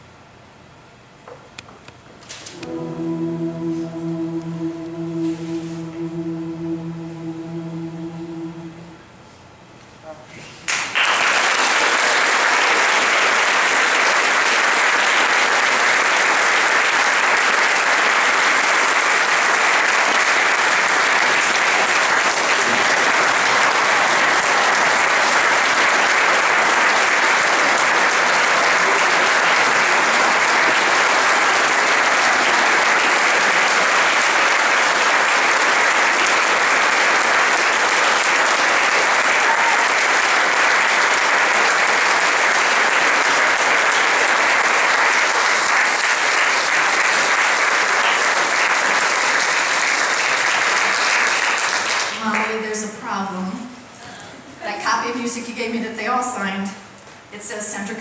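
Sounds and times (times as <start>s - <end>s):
audience applauding: 10.7s - 52.2s.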